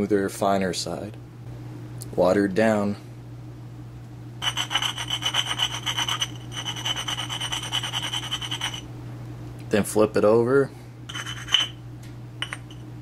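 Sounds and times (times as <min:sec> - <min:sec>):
steel scraping on sharpening stone: 0:04.4 - 0:08.8, 0:11.1 - 0:11.8.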